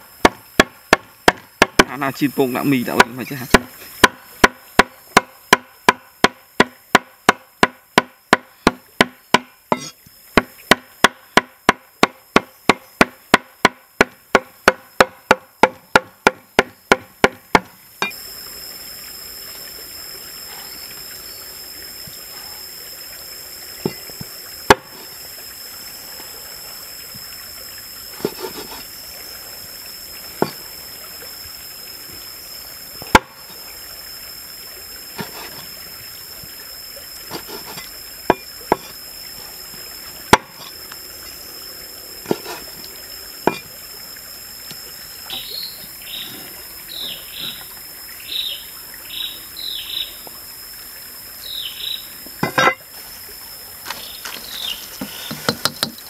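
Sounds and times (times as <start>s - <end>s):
steady hiss: 0.0s - 7.6s, 15.5s - 56.0s
knocks on wooden board: 0.2s - 1.9s, 3.0s - 9.8s, 10.4s - 17.7s, 55.0s - 56.0s
cleaver chopping meat on board: 0.2s - 2.0s, 3.0s - 18.2s.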